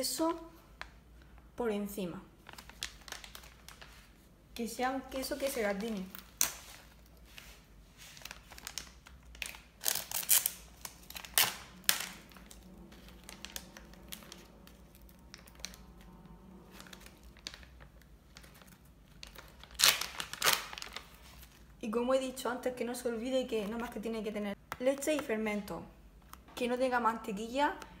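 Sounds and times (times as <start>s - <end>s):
plastic packaging crinkling: 2.4s - 4.3s, 5.0s - 21.8s.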